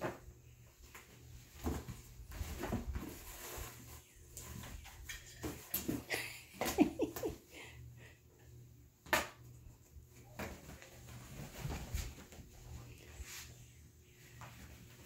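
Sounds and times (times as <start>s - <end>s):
kittens scuffling: 0.0s - 7.4s, 9.7s - 15.0s.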